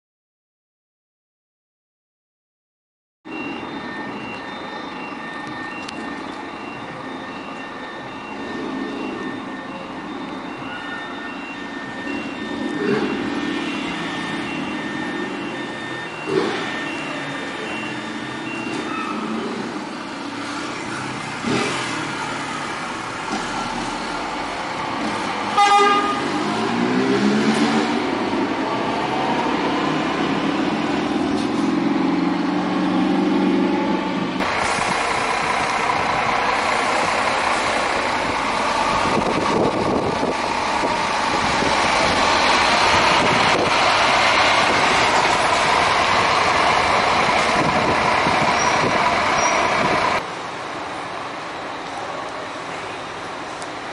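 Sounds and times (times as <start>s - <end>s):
repeated beeping: 3.3s - 22.2s
bus diesel engine running: 3.3s - 53.9s
short horn toot: 25.5s - 26.4s.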